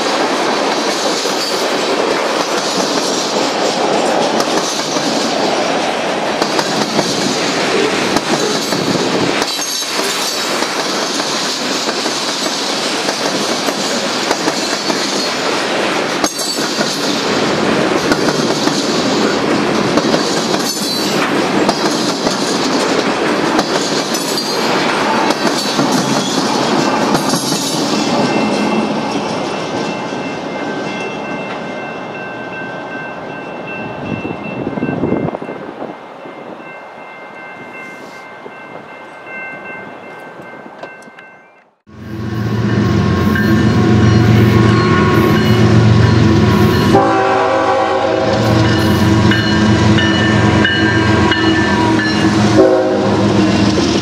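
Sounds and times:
train wheels on rails: 0:00.0 - 0:54.0
wheels clicking over rail joints: 0:00.2 - 0:29.9.

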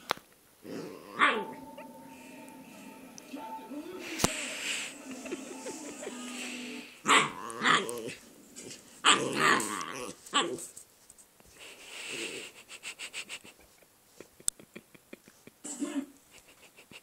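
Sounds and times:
puppy growling: 0:00.6 - 0:01.6, 0:07.0 - 0:10.6.

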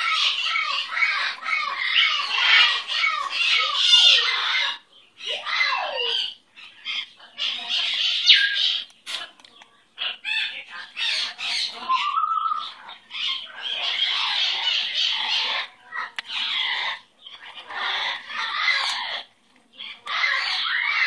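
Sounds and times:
parrot squawking and chattering: 0:00.0 - 0:09.4, 0:10.0 - 0:21.0.

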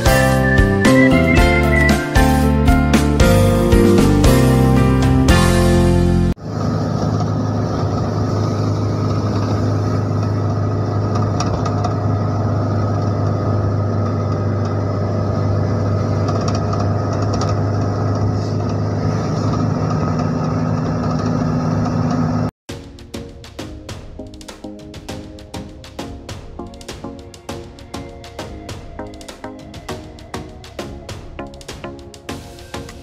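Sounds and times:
vehicle engine drone: 0:00.0 - 0:22.6
tyre and road noise: 0:05.3 - 0:33.0.

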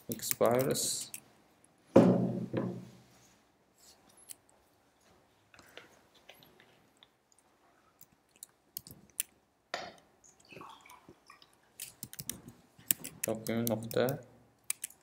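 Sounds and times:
computer keyboard clicks: 0:12.0 - 0:15.0.

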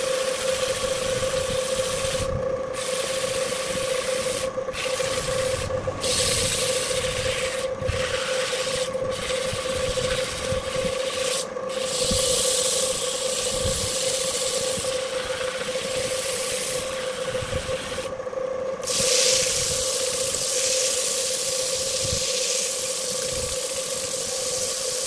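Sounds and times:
lathe motor whine: 0:00.0 - 0:25.0
sandpaper rasping on turning wood: 0:04.1 - 0:17.3, 0:18.8 - 0:25.0.

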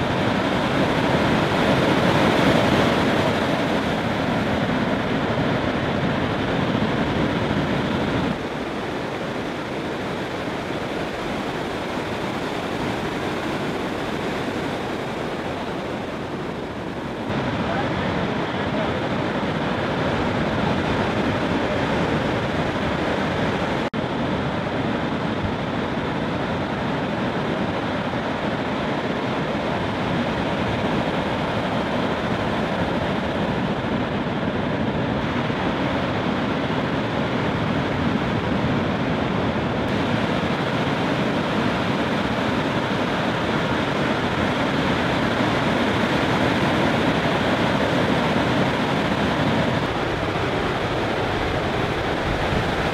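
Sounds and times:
ocean surf breaking: 0:00.0 - 0:52.9.

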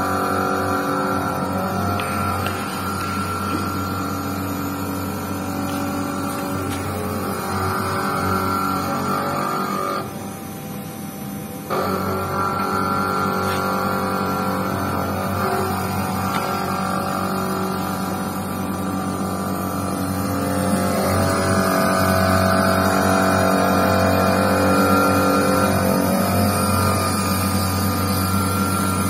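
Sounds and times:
milling machine whine: 0:00.0 - 0:29.0.

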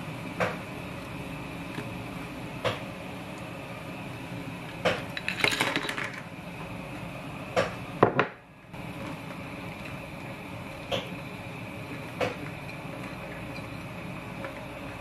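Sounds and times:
clam shells clattering into pot: 0:05.2 - 0:06.2
boiling water bubbling: 0:06.2 - 0:15.0.

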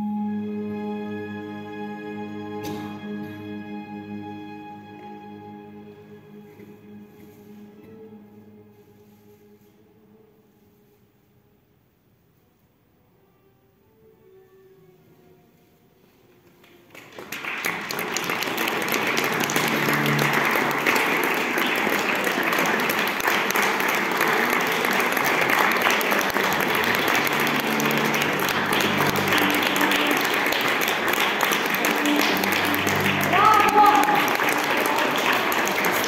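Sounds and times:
audience applause: 0:16.6 - 0:36.0.

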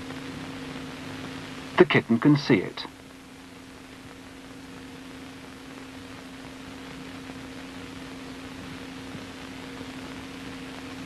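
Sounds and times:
low hum with hiss: 0:00.0 - 0:11.0.

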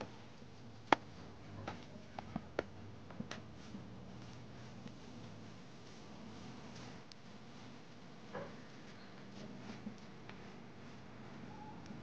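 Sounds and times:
low steady hum: 0:00.0 - 0:12.0
dough pats and squishes: 0:00.4 - 0:05.4.

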